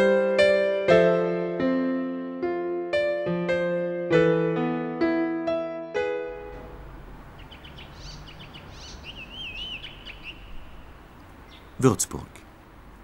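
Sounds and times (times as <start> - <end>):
slow electric piano notes: 0.0 - 9.2
birds chirping: 6.6 - 12.6
wavering whistled bird call: 7.4 - 10.9.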